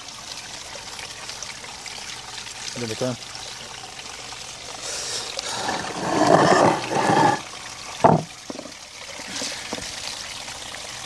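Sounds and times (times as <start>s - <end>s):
fountain trickling: 0.0s - 11.0s.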